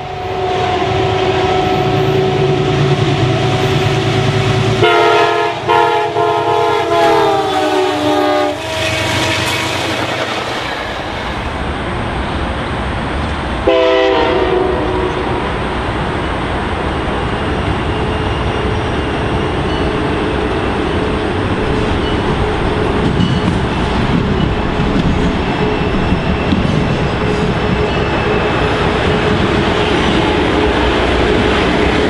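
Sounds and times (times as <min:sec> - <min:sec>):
train air horn blasts: 0:00.0 - 0:10.4, 0:13.6 - 0:15.5
train rumbling and rattling: 0:00.0 - 0:32.0.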